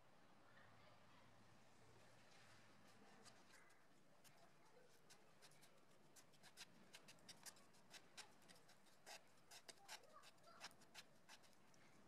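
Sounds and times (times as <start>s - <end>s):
wooden stick scraping paste: 4.2s - 11.8s.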